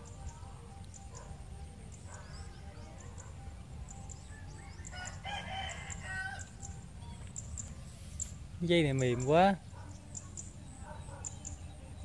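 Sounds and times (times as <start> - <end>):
rooster crowing: 4.7 - 6.5.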